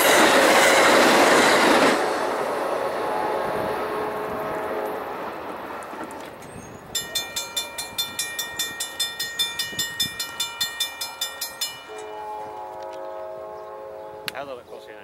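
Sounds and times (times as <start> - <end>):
train rumble: 0.0 - 15.0
railroad crossing bell ringing: 6.8 - 15.0.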